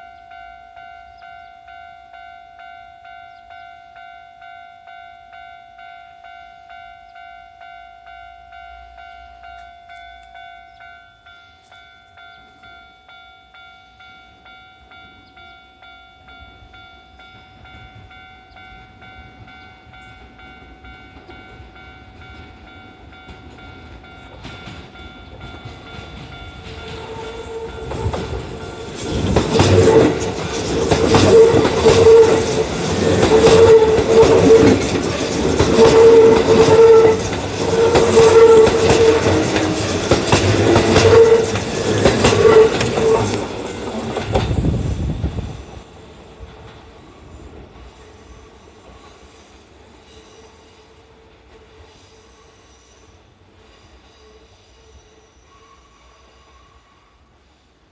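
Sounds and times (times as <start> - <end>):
level-crossing bell ringing: 0.0 - 44.0
train wheels clattering: 19.2 - 50.8.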